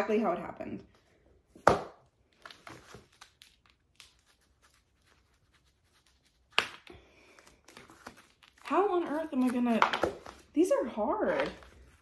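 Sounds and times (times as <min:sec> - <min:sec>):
plastic wrap crinkling: 0:02.3 - 0:10.6.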